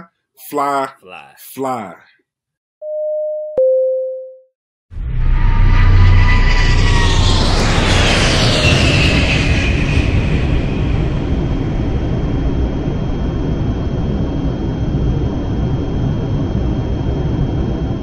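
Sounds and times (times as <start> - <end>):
jet engine whine: 5.1 - 18.0
jet engines rumbling: 5.4 - 18.0.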